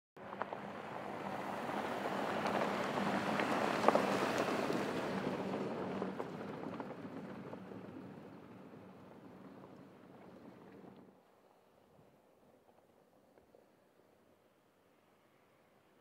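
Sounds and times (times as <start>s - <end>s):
tyres rushing on gravel: 0.2s - 11.0s.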